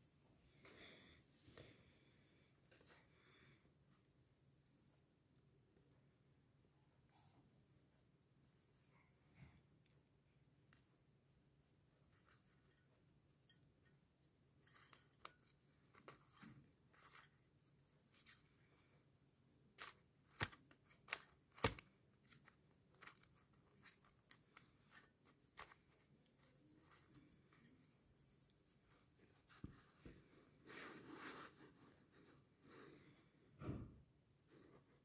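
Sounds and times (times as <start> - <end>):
sharp plastic snaps: 20.3 - 22.4.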